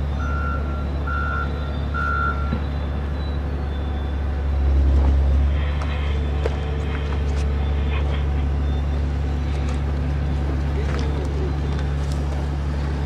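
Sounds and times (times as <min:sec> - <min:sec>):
truck engine low rumble: 0:00.0 - 0:13.0
truck reversing alarm beeping: 0:00.0 - 0:13.0.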